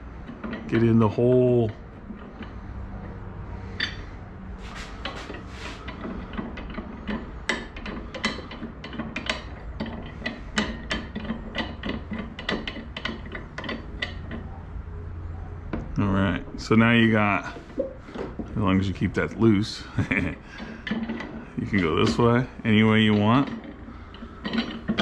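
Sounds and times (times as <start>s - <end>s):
metal parts clicking and rattling: 4.6s - 14.5s, 19.6s - 25.0s.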